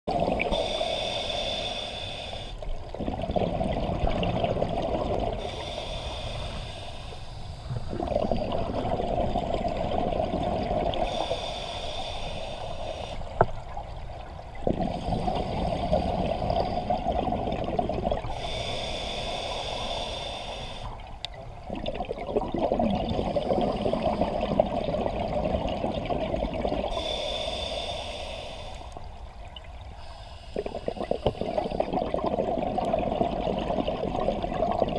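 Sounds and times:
bubbling exhale: 0.1s - 13.5s, 14.6s - 21.0s, 21.6s - 29.0s, 30.0s - 34.9s
diver inhaling through regulator: 0.4s - 2.7s, 5.2s - 8.9s, 10.5s - 13.5s, 14.7s - 21.0s, 26.8s - 29.1s, 30.0s - 32.1s.

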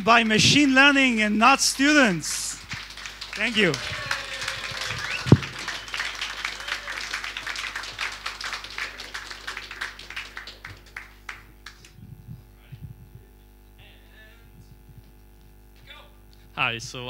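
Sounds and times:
audience applauding: 0.0s - 12.0s
steady low hum: 0.0s - 17.0s.

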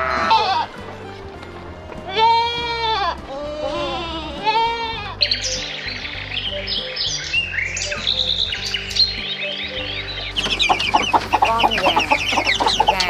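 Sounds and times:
hen clucking: 0.0s - 0.8s, 2.0s - 13.0s
small birds chirping: 2.2s - 13.0s
chicks peeping: 4.4s - 13.0s.

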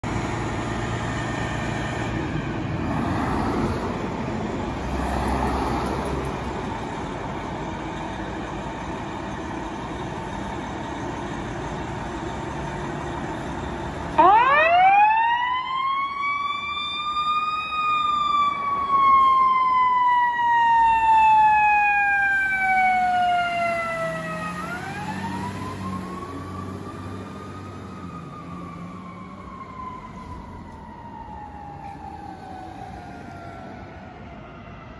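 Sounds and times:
fire truck engine rumbling: 0.0s - 34.9s
siren wailing: 14.0s - 34.9s.

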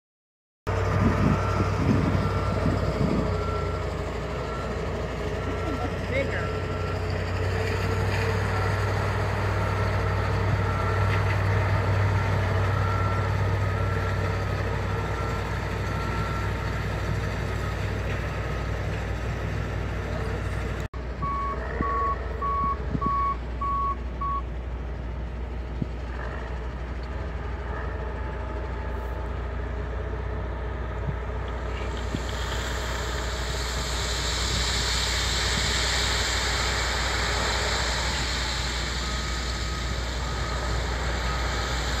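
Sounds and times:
heavy diesel machinery running: 0.7s - 42.0s
reversing alarm beeping: 0.9s - 19.0s, 21.2s - 24.5s, 33.0s - 42.0s
hiss: 31.8s - 42.0s.

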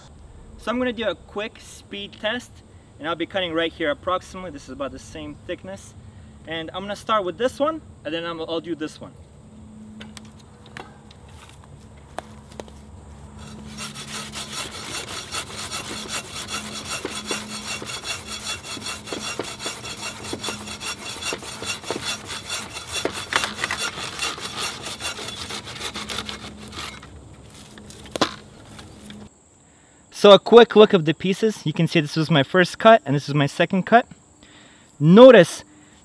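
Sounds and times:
hand saw cutting branch: 13.4s - 29.3s.

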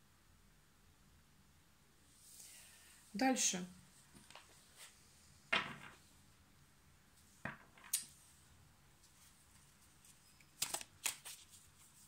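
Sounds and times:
cards rustling: 9.1s - 12.0s
card clicks: 10.6s - 11.4s.

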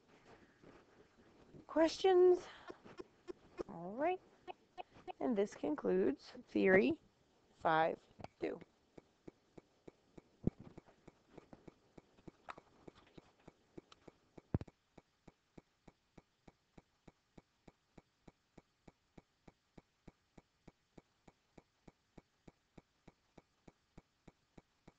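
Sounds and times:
background hiss: 0.0s - 24.9s
faint ticking: 7.6s - 24.9s.

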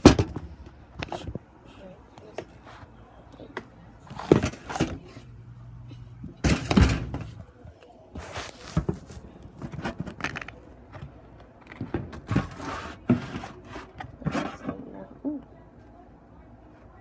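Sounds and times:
plastic bottles and bowl handled: 6.3s - 15.0s.

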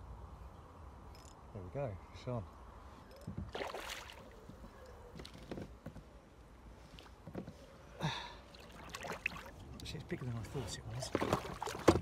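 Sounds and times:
water splashing around a kayak: 3.5s - 4.6s, 8.4s - 12.0s.

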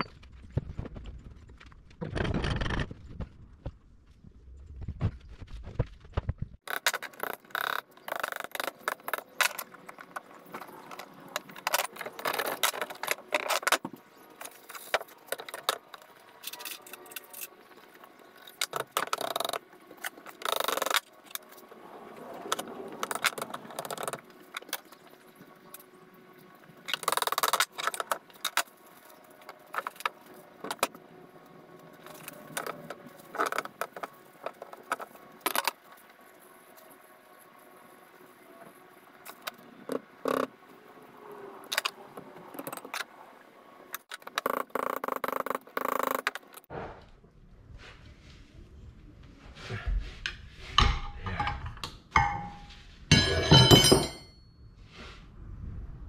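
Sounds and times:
steel parts clanking: 50.8s - 54.4s.

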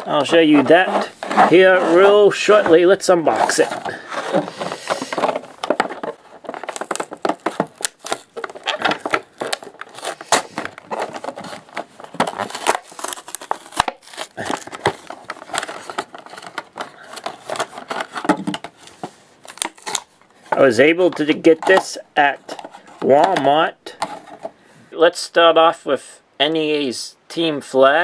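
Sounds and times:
cardboard ripping: 0.0s - 21.9s
plastic crinkling and crackling: 0.0s - 24.6s.

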